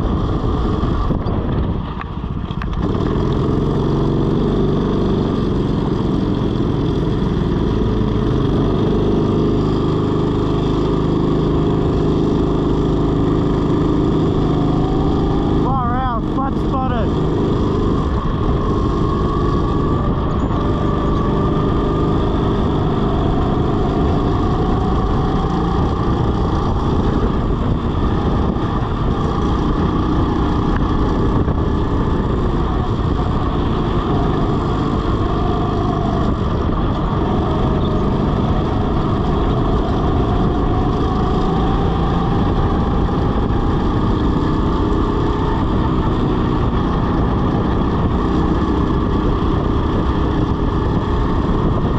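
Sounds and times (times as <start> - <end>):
dense rushing noise: 0.0 - 51.9
go-kart motor: 0.0 - 51.9.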